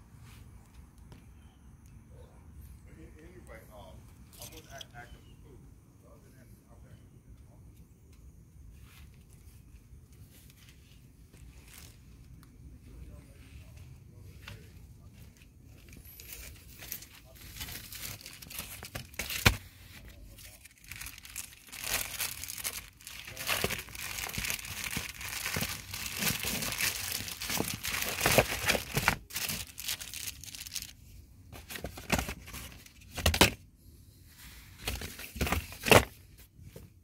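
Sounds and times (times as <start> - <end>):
plastic wrapping crinkling and tearing: 16.2 - 31.0.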